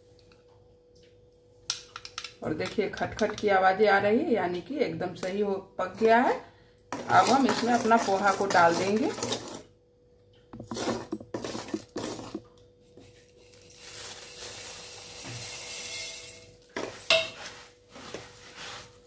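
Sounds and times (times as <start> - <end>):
spoon scraping metal pan: 7.0 - 9.6, 10.6 - 12.4
flattened rice pouring hiss: 13.5 - 16.6.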